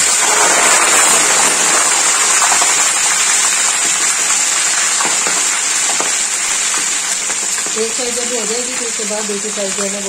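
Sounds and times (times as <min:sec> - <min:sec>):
chicken sizzling in hot oil: 0:00.0 - 0:10.0.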